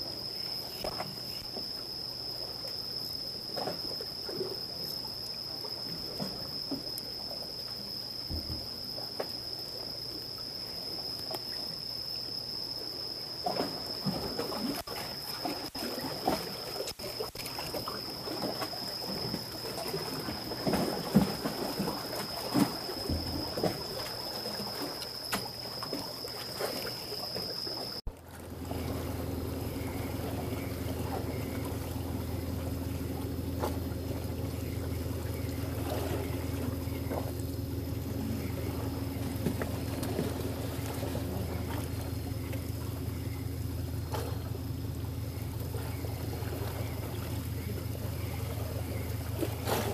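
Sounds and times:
water sloshing and trickling: 0.0s - 49.9s
low engine drone: 28.0s - 49.9s.

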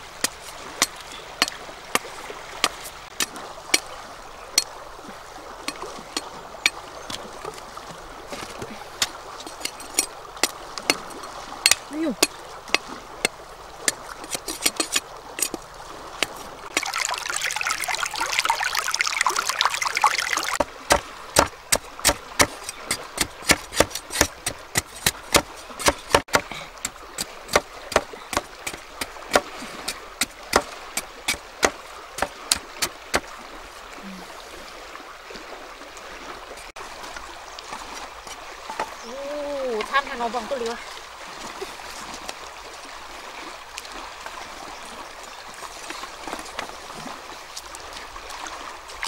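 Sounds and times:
water pouring: 4.6s - 33.4s.

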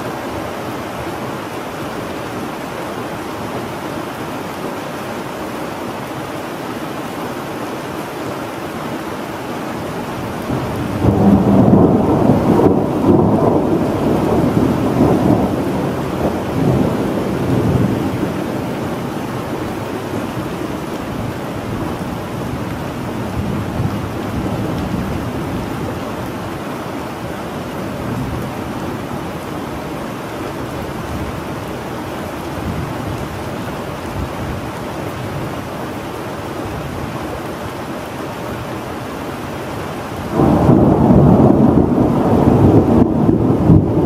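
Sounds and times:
steady rain: 0.0s - 44.0s
thunder rumbling: 10.3s - 26.4s, 40.3s - 44.0s.

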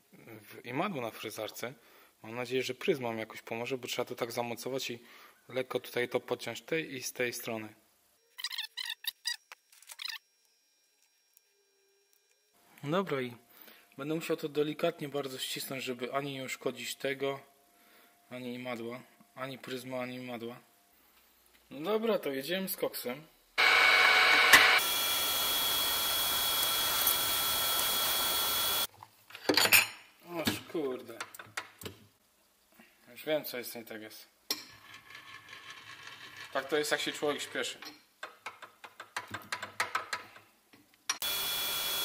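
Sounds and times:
short high-pitched squeak: 8.2s - 10.3s
milling machine whining: 23.6s - 28.9s, 41.2s - 42.0s.

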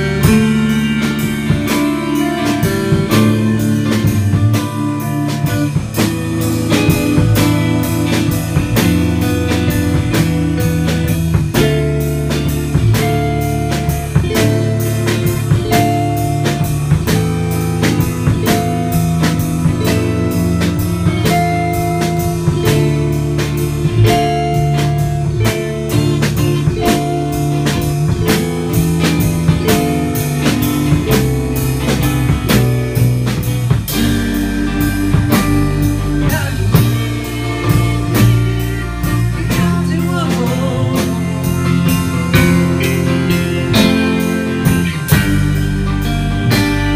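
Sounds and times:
blues-rock band playing live: 0.0s - 46.9s
drum kit beat: 0.0s - 46.9s
electric guitar: 0.0s - 46.9s.

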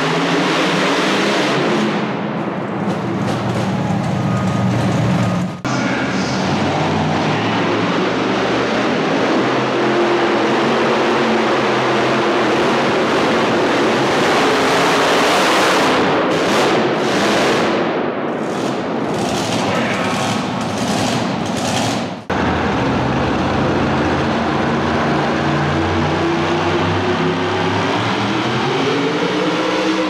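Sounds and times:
tractor engine at full power: 0.0s - 30.0s.

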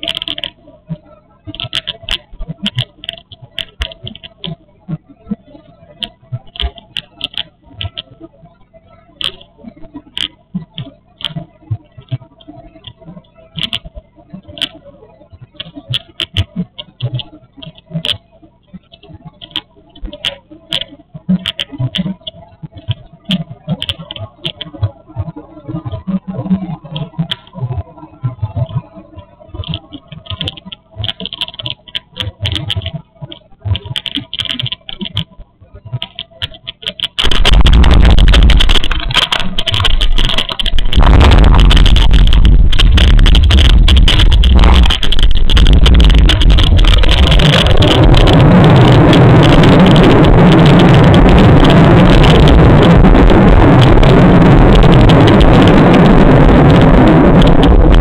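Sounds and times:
small clicks and crackles: 0.0s - 58.0s
jet roar with deep rumble: 37.2s - 58.0s.

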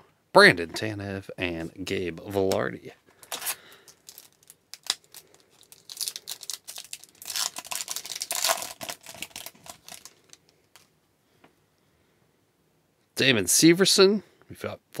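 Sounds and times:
wrapper tearing and crinkling: 3.2s - 10.9s.

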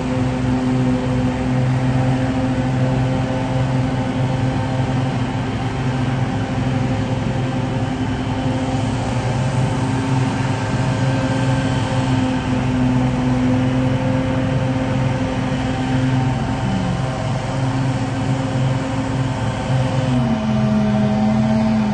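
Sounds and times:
lawn machine engine humming: 0.0s - 21.9s.

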